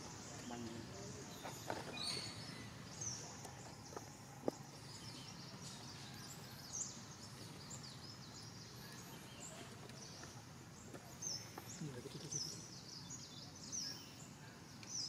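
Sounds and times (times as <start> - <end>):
outdoor background: 0.0 - 15.0
high bird chirps: 1.4 - 2.8.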